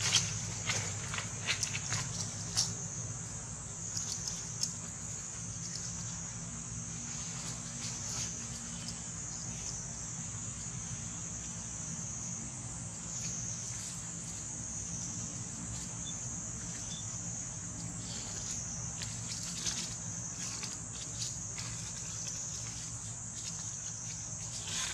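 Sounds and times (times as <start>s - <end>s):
insect chorus: 0.0s - 24.9s.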